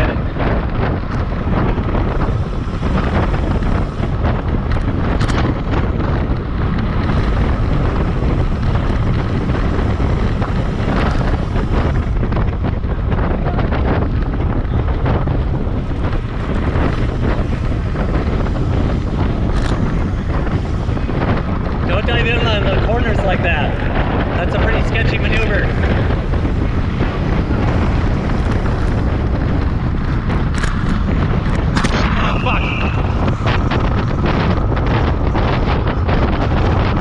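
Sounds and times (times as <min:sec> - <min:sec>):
wind buffeting microphone: 0:00.0 - 0:37.0.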